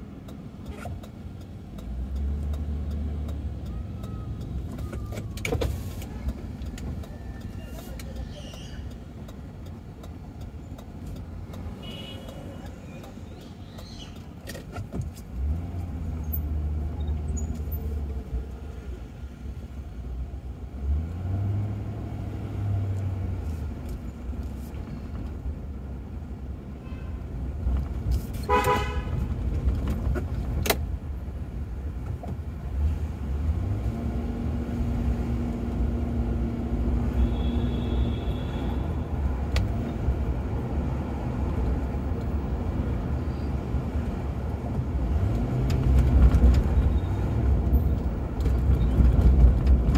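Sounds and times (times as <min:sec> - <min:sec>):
car engine and road rumble: 0:00.0 - 0:49.9
car horn toot: 0:11.8 - 0:12.7, 0:28.5 - 0:29.2, 0:37.1 - 0:39.1.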